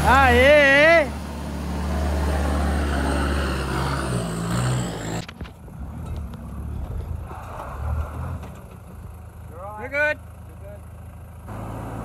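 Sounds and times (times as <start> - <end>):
truck engine driving past: 0.0 - 12.0.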